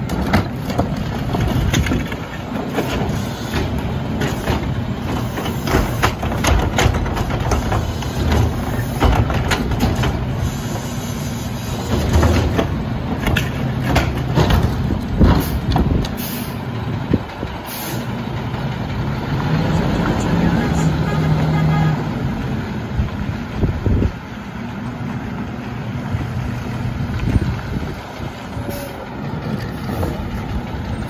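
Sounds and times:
plastic cart clanks and knocks: 0.0s - 3.0s, 5.7s - 10.2s, 12.0s - 15.9s
garbage truck engine running: 0.0s - 31.0s.

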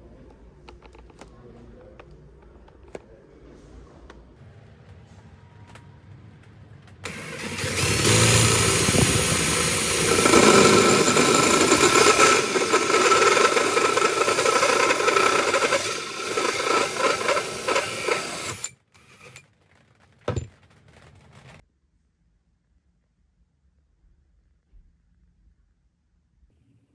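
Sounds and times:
cordless drill motor whine: 7.0s - 19.4s
hole saw grinding wood: 7.0s - 19.4s.

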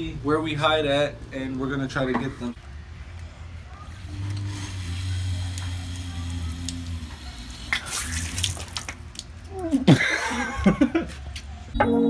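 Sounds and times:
water hissing from hose spigot: 3.9s - 9.3s
rush of spraying water: 3.9s - 9.4s.

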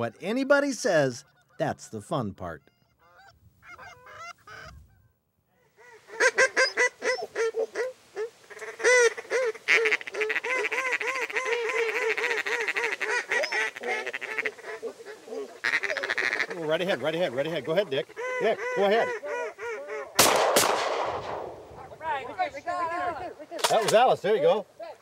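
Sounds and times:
geese honking: 0.0s - 20.5s.

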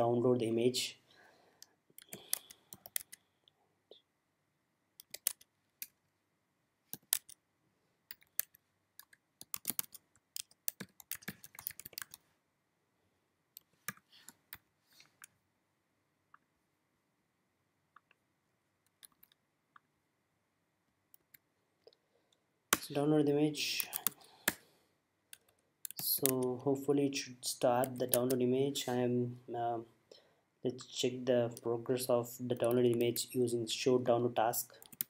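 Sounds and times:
computer keyboard typing: 2.0s - 3.2s, 5.0s - 6.0s, 6.9s - 7.4s, 8.1s - 12.2s, 18.9s - 19.4s, 23.8s - 24.6s, 25.3s - 26.4s, 27.8s - 28.4s, 34.8s - 35.0s.

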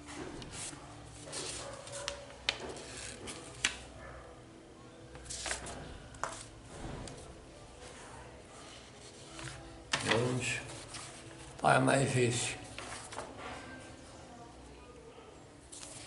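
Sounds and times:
paper rustling and scratching: 0.4s - 3.9s, 5.2s - 7.2s, 8.6s - 11.6s, 12.6s - 13.7s, 15.7s - 16.0s.

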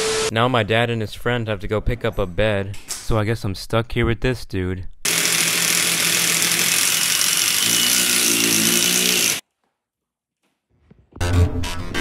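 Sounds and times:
cordless drill boring into wall: 5.1s - 9.4s.

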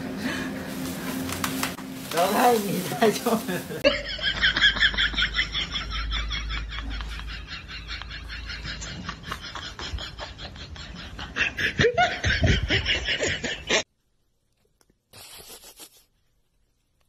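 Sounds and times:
person laughing: 3.4s - 13.8s.

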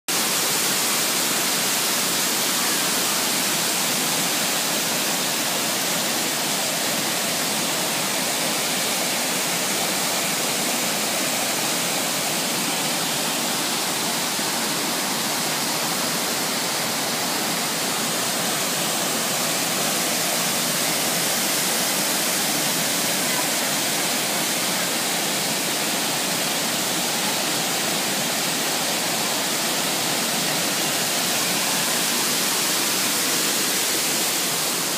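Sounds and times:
waterfall pouring heavily: 0.1s - 34.9s.

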